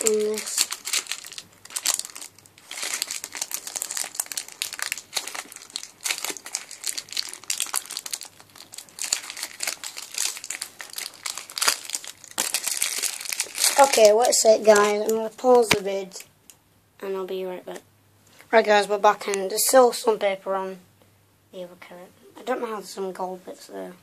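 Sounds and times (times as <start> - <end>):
paper crinkling: 0.0 - 15.8.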